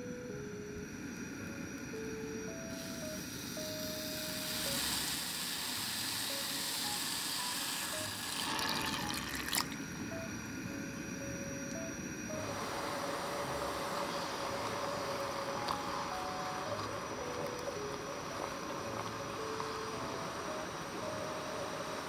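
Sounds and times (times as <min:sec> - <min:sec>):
soft background music: 0:00.0 - 0:22.0
sugar pouring with soft hiss: 0:02.7 - 0:11.1, 0:12.4 - 0:22.0
water pouring in thin stream: 0:07.7 - 0:09.8.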